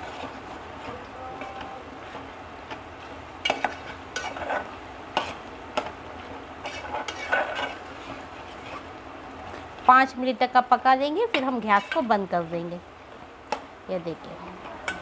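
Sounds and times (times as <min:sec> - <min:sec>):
curry sizzling: 0:00.0 - 0:15.0
metal spoon scraping a pot: 0:03.4 - 0:05.4, 0:06.6 - 0:08.9, 0:11.4 - 0:12.1.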